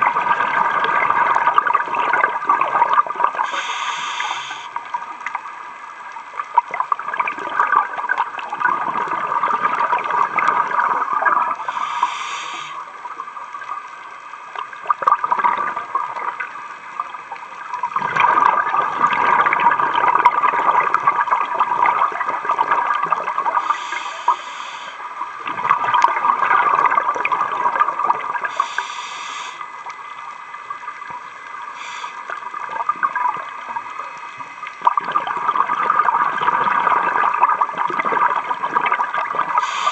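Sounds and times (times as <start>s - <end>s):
hissing regulator inhalations: 3.4s - 4.9s, 11.6s - 13.0s, 23.6s - 25.2s, 28.5s - 29.8s, 31.7s - 32.4s, 39.6s - 39.9s
bubbling exhalations: 34.8s - 39.9s.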